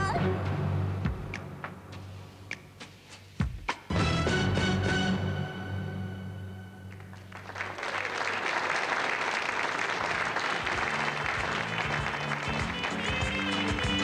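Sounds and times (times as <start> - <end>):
audience applause: 6.9 - 14.0.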